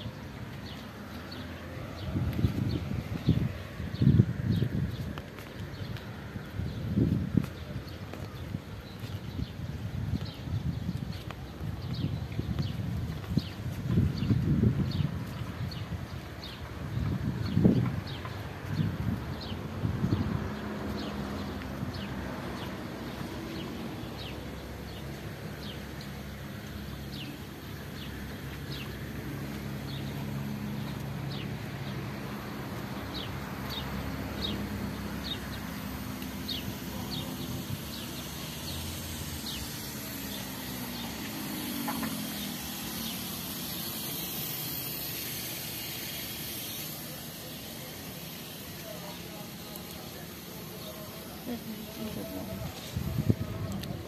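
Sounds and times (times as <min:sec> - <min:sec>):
distant engine hum: 0:00.0 - 0:54.0
bird chirping: 0:33.0 - 0:52.5.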